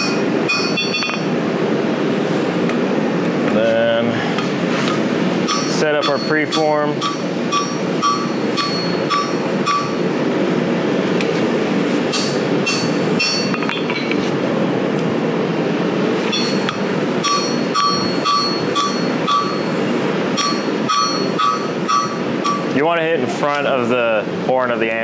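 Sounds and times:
hammer striking hot steel on anvil: 0:00.0 - 0:01.3, 0:05.4 - 0:10.1, 0:12.1 - 0:14.1, 0:16.3 - 0:19.8, 0:20.4 - 0:22.8.

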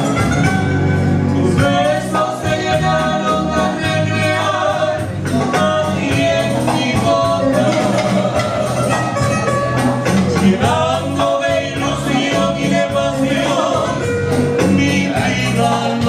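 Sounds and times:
instrumental accompaniment: 0:00.0 - 0:16.0
man and woman singing: 0:01.4 - 0:09.1, 0:10.2 - 0:16.0.

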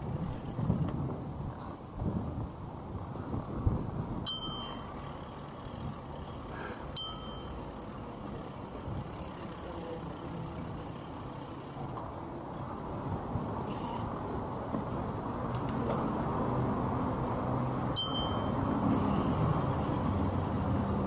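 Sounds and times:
bike rolling rumble: 0:00.0 - 0:21.0
bicycle bell ding: 0:04.2 - 0:05.0, 0:06.9 - 0:07.7, 0:18.0 - 0:18.7.

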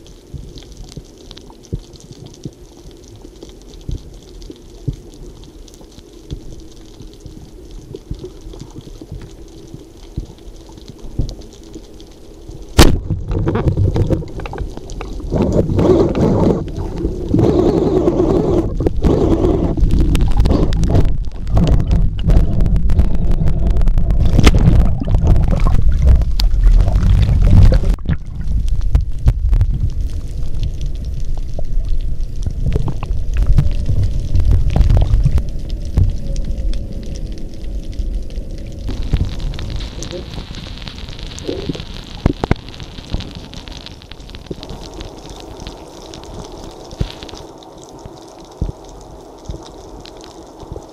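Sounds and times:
speargun firing underwater: 0:12.8 - 0:13.5
churning water noise: 0:12.8 - 0:36.7.

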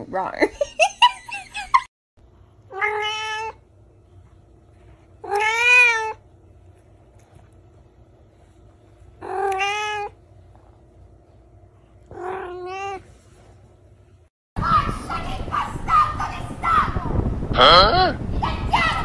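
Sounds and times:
faint steady hum: 0:00.0 - 0:19.0
cat meowing: 0:02.7 - 0:03.6, 0:05.2 - 0:06.2, 0:09.2 - 0:10.2.

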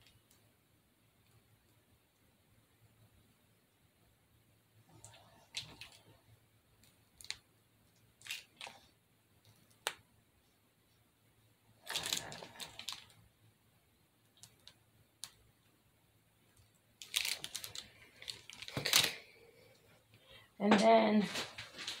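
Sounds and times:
plastic piping bag crinkling: 0:04.9 - 0:06.2, 0:06.8 - 0:10.0, 0:11.8 - 0:13.3, 0:14.3 - 0:15.4, 0:16.5 - 0:19.8.

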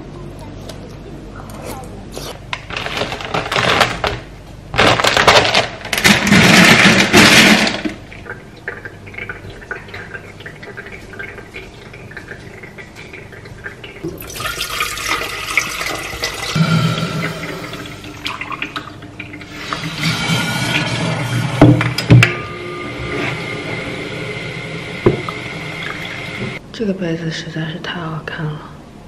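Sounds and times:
water poured into kettle: 0:06.8 - 0:22.0
water gushing: 0:07.0 - 0:22.0, 0:23.3 - 0:26.6.

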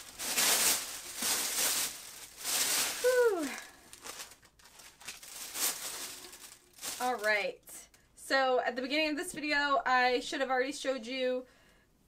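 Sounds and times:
tissue paper rustling: 0:00.0 - 0:07.4
person saying ooh: 0:03.0 - 0:03.7.

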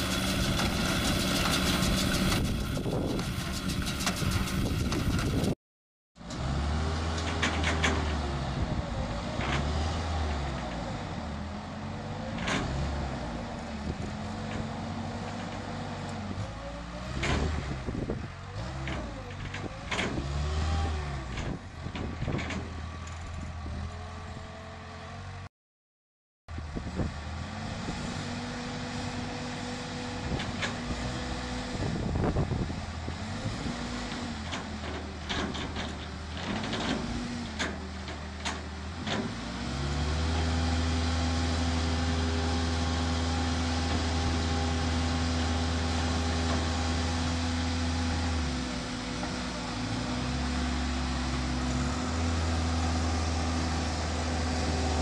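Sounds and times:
diesel engine running: 0:00.0 - 0:05.6, 0:06.2 - 0:25.4, 0:26.5 - 0:55.0
hydraulics whining: 0:00.0 - 0:05.6, 0:27.4 - 0:55.0
knocks and scrapes: 0:00.0 - 0:05.6, 0:06.9 - 0:08.3, 0:21.2 - 0:23.6, 0:33.4 - 0:39.7.

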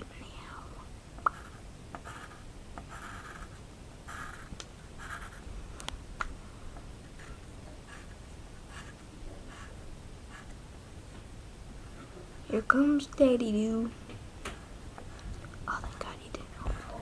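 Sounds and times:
drawing scratches on paper: 0:01.2 - 0:05.4, 0:07.1 - 0:10.6.

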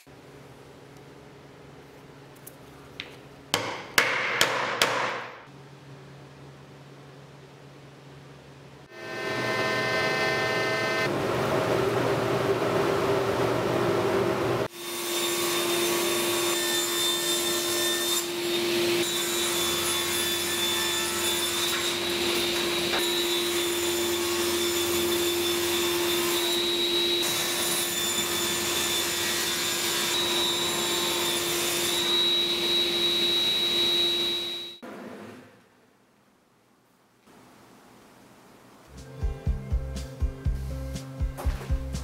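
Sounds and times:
table saw cutting wood: 0:08.9 - 0:11.1, 0:14.7 - 0:34.8.

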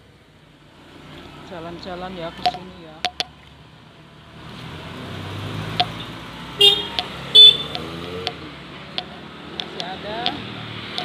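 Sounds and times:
vehicle engine hum passing: 0:00.6 - 0:11.0
horn toots: 0:06.6 - 0:08.4.

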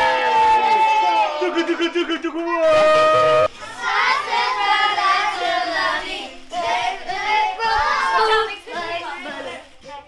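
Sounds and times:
children singing together: 0:03.5 - 0:10.0.

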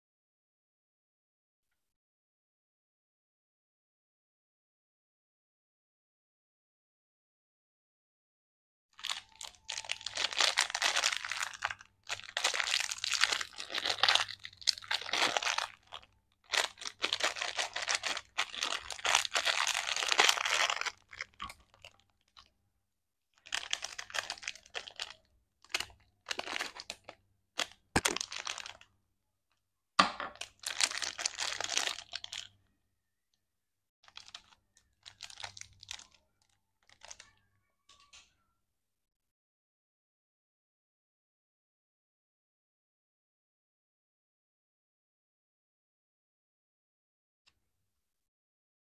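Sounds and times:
plastic wrapper crinkling: 0:09.0 - 0:22.5, 0:23.4 - 0:28.9, 0:30.2 - 0:32.5, 0:34.1 - 0:38.1.

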